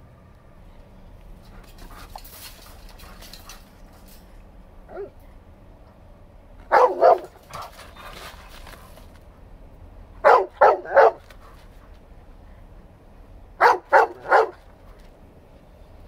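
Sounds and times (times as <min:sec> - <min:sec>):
dog barking loudly: 0:06.6 - 0:07.7, 0:10.2 - 0:11.3, 0:13.6 - 0:14.7.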